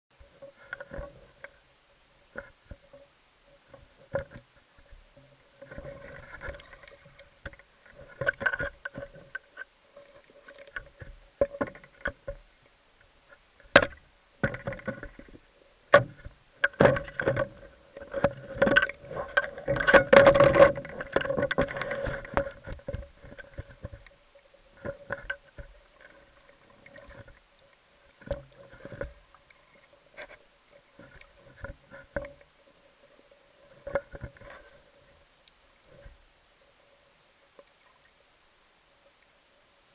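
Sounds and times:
faint steady hum: 0.1 - 39.9
underwater clicks and knocks: 0.3 - 1.6, 3.7 - 30.4, 31.0 - 32.5, 33.8 - 34.8.

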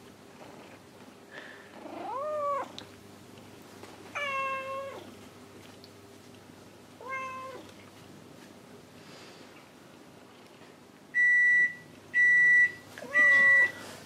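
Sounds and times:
cat meowing: 1.9 - 2.7, 4.2 - 5.1, 7.0 - 7.7, 13.0 - 13.7.

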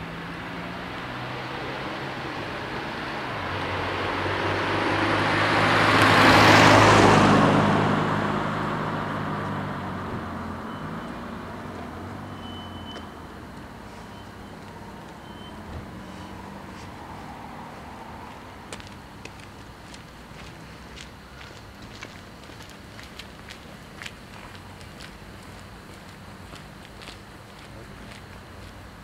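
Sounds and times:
motor vehicle passing by: 0.0 - 21.1.

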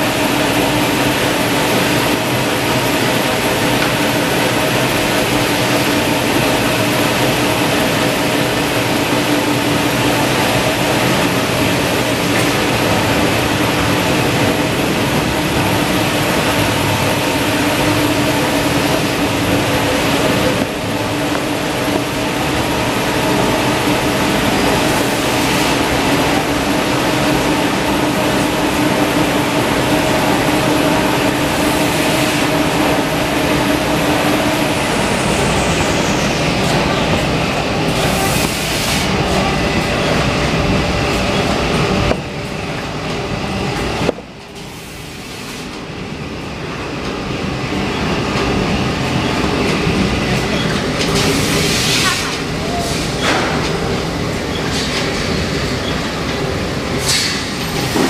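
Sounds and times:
constant machine hum: 0.0 - 58.0.

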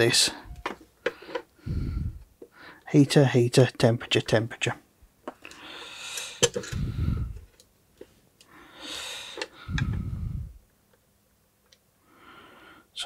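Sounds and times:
man breathing heavily: 0.4 - 2.9, 5.4 - 7.5, 8.5 - 10.6, 12.0 - 12.9.

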